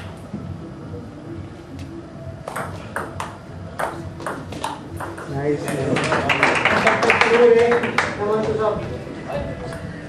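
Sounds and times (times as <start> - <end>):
table tennis ball hits: 2.4 - 6.4.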